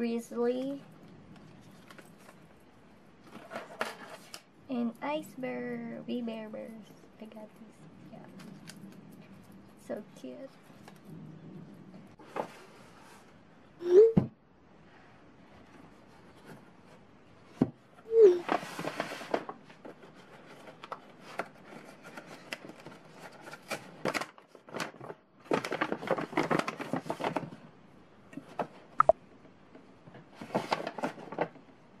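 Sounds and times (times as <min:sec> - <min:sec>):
paper bag and tissue rustling: 0:18.2 - 0:27.7, 0:30.3 - 0:31.6.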